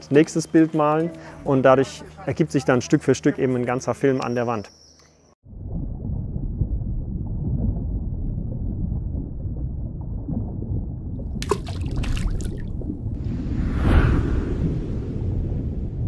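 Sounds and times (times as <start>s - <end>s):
low rumbling noise: 5.4s - 16.0s.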